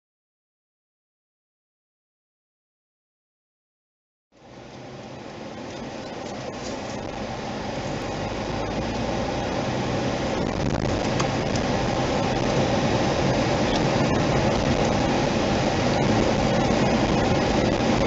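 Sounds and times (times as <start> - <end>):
car cabin road noise: 4.4 - 18.0.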